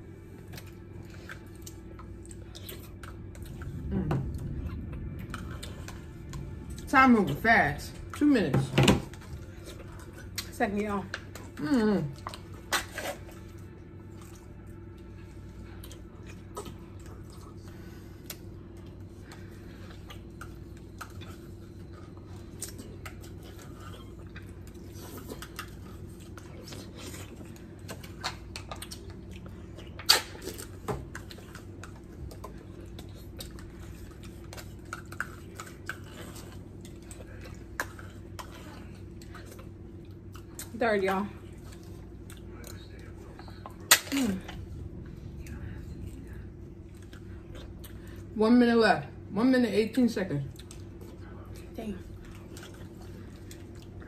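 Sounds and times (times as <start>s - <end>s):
slurping and chewing: 0.4s - 6.9s, 9.1s - 10.5s, 11.2s - 40.7s.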